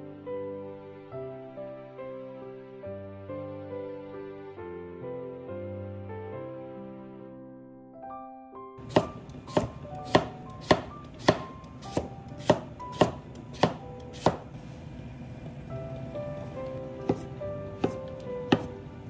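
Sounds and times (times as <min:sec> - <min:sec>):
soft background music: 0:00.0 - 0:19.0
knife chopping carrot on wood: 0:08.8 - 0:14.5, 0:17.0 - 0:18.8.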